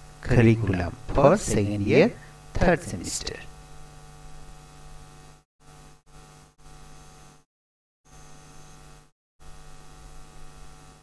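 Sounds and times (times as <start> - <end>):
electrical mains hum: 0.0 - 7.4.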